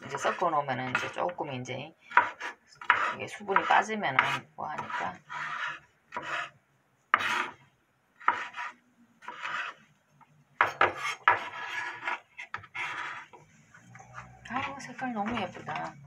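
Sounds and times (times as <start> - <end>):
pieces scraped on cutting board: 0.0 - 1.3, 2.0 - 9.9, 10.6 - 15.9
knife slicing pepper on wooden board: 2.1 - 6.5, 8.2 - 9.8, 10.6 - 13.3.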